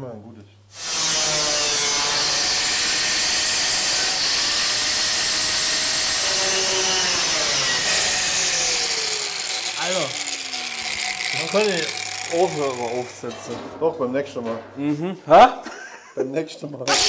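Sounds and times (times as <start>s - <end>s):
power tool cutting steel sheet: 0.7s - 13.4s.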